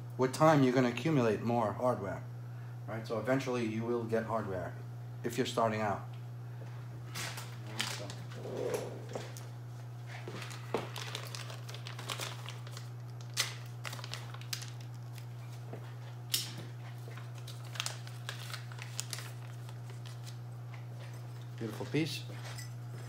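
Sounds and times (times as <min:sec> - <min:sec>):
plastic bag crinkling: 0:07.5 - 0:08.4, 0:10.3 - 0:15.7, 0:16.9 - 0:20.4
low hum: 0:08.1 - 0:09.7.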